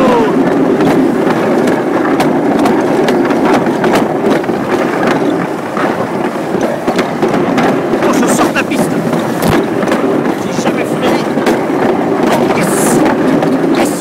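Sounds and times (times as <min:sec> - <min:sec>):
luge sled rumbling on track: 0:00.0 - 0:14.0
sled clicks and knocks: 0:00.0 - 0:14.0.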